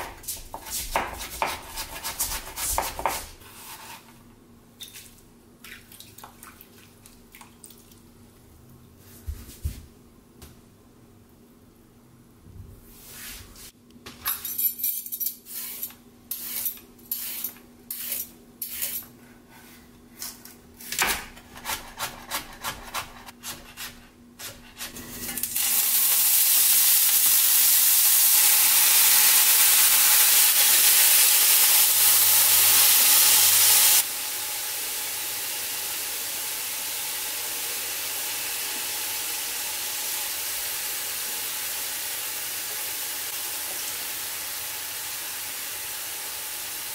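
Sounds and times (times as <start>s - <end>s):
food sizzling in hot oil: 25.0s - 46.9s.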